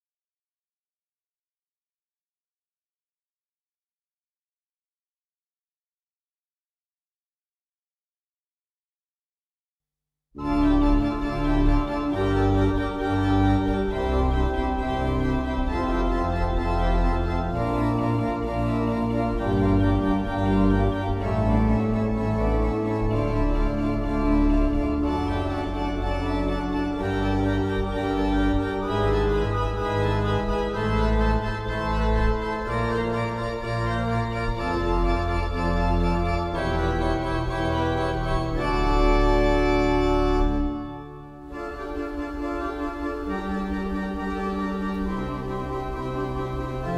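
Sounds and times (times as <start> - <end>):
deep organ pedal bass notes: 10.4 - 46.9
pipe organ chords: 10.4 - 46.9.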